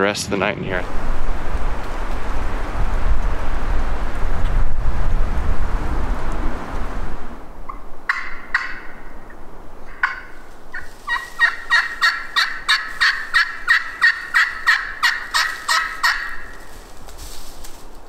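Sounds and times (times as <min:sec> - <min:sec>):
turkey yelping: 0:07.7 - 0:09.2, 0:09.9 - 0:16.7.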